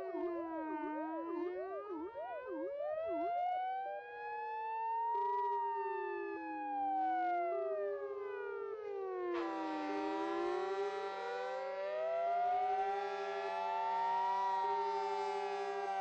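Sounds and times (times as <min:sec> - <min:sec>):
two-tone hi-lo siren: 0:00.0 - 0:16.0
sirens wailing: 0:04.9 - 0:16.0
fire engine sirens yelping: 0:09.4 - 0:16.0.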